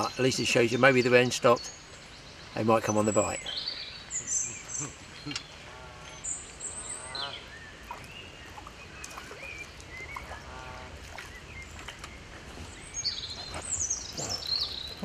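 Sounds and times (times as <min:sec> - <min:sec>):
bird chirps: 0:00.0 - 0:10.7, 0:11.3 - 0:15.0
high falling bird calls: 0:00.0 - 0:15.0
wind and water rumble: 0:00.0 - 0:15.0
small splash: 0:07.8 - 0:13.0.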